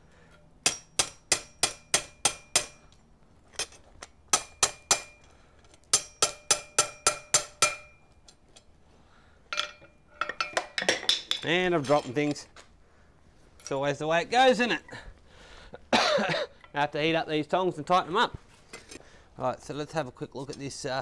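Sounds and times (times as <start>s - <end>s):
hammer tapping on metal tongs: 0.3s - 3.0s, 4.3s - 5.3s, 5.9s - 8.4s.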